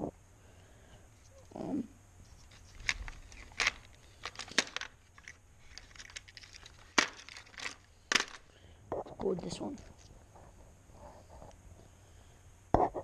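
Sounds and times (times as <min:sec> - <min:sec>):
fishing jigs clicking and rattling: 0:02.5 - 0:08.4.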